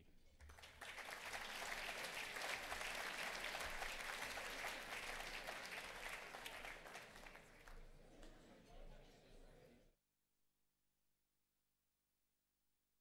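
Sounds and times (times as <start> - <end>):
audience applauding: 0.4 - 8.0.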